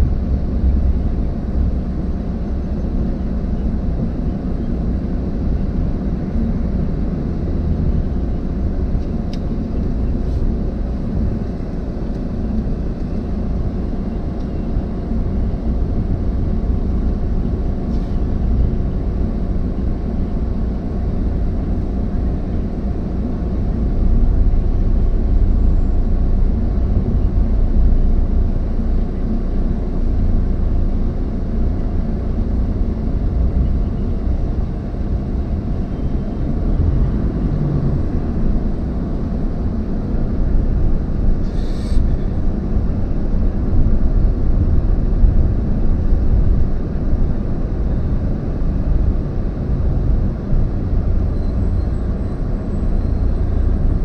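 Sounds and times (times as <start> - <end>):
car interior road rumble: 0.0 - 54.0.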